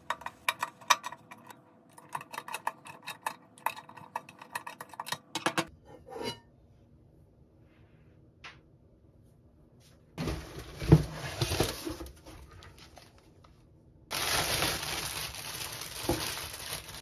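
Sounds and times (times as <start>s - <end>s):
plastic wrapping crinkling and tearing: 14.1s - 17.0s.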